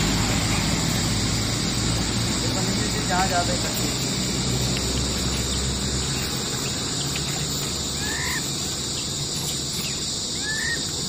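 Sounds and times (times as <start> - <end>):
insects droning: 0.0 - 11.0
short chirping call: 4.8 - 11.0.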